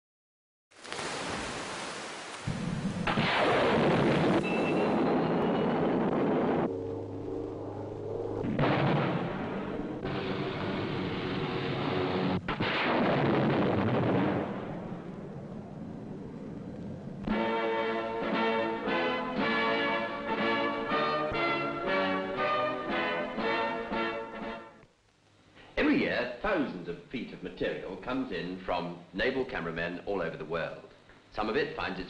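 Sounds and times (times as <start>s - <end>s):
steady low tones: 4.9s - 12.6s, 13.3s - 21.0s
rocket motor roaring: 5.9s - 12.5s.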